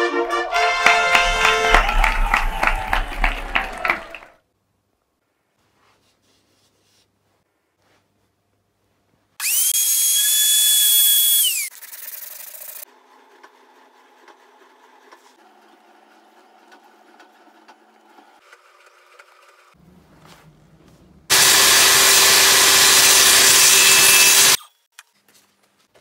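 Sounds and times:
power tool motor whining: 9.4s - 12.8s, 21.3s - 24.7s.

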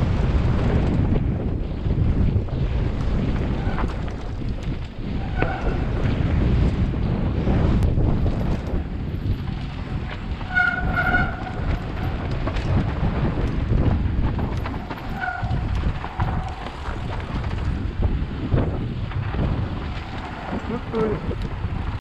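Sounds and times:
bike tyres rumbling on rocky trail: 0.0s - 22.0s
wind buffeting microphone: 0.0s - 22.0s
horn honks: 10.5s - 11.6s.

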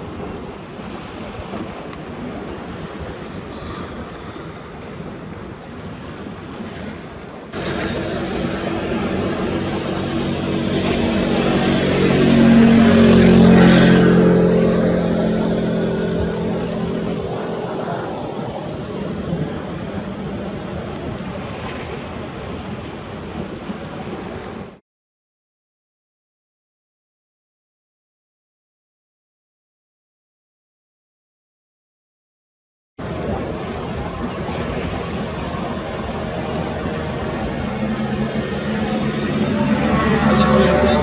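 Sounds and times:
sea waves washing: 0.0s - 24.8s, 33.0s - 41.0s
engine drone passing by: 7.5s - 24.8s, 33.0s - 41.0s.

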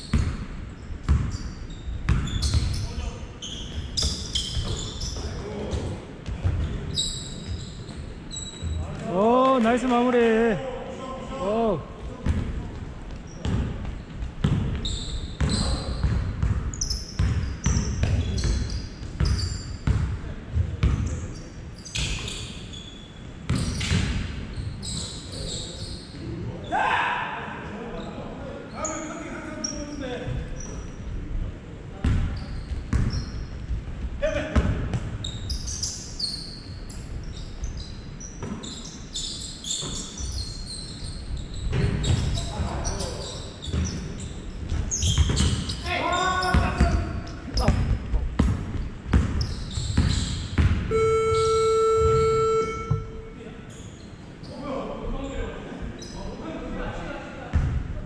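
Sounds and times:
sneakers squeaking: 0.0s - 9.3s, 12.0s - 26.4s, 28.0s - 31.2s, 32.0s - 56.4s
basketball bouncing on wooden floor: 1.0s - 1.4s, 13.4s - 14.8s, 15.4s - 21.1s, 47.6s - 51.1s.

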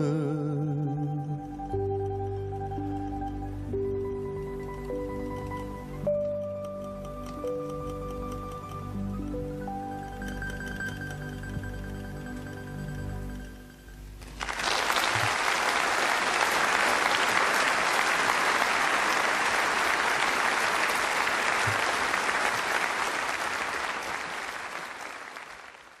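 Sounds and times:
audience applauding: 14.2s - 26.0s.

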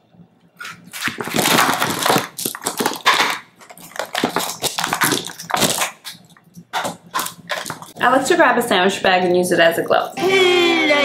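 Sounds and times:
hard candies crackling and clicking: 0.6s - 8.0s.

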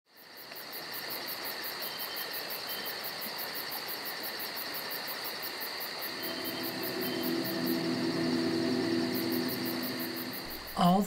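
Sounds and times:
insects trilling: 0.1s - 11.0s
fast pulsing chirp: 6.1s - 10.8s.

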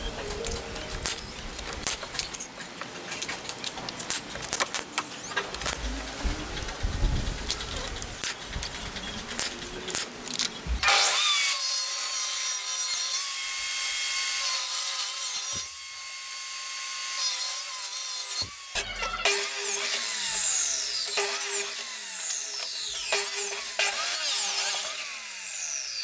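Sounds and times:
table saw cutting wood: 10.8s - 26.0s.

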